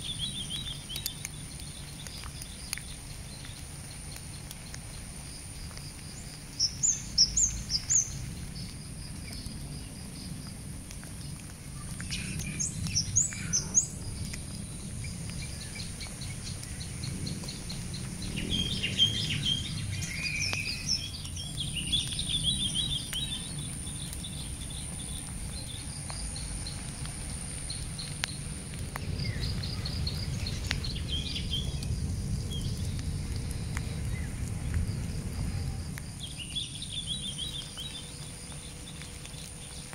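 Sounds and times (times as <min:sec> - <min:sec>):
steady low rumble: 0:00.0 - 0:39.9
birds chirping and calling: 0:12.0 - 0:14.2, 0:15.0 - 0:25.8.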